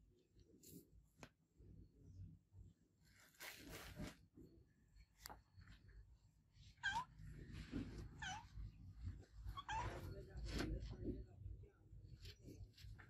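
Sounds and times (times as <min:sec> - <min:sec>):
soft rustling: 0:03.0 - 0:11.4
cat meowing: 0:06.8 - 0:07.2, 0:08.0 - 0:08.7, 0:09.4 - 0:10.2.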